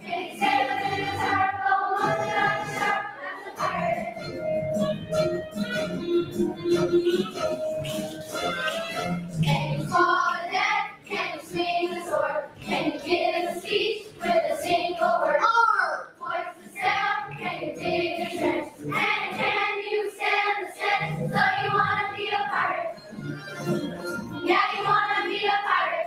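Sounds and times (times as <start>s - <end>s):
children's choir singing: 0.0s - 4.7s, 9.3s - 23.2s, 24.4s - 26.0s.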